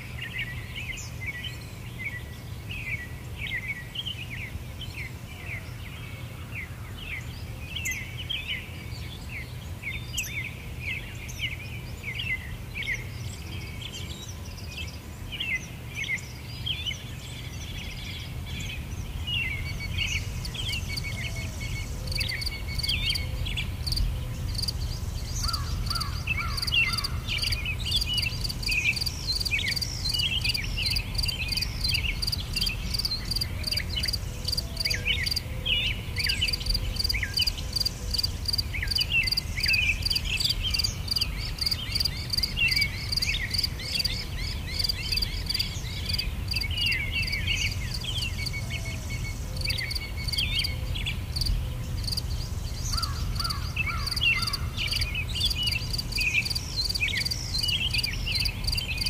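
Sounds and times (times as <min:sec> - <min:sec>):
birds chirping and calling: 0:15.4 - 0:59.0
insects chirping: 0:19.3 - 0:50.7, 0:51.3 - 0:59.0.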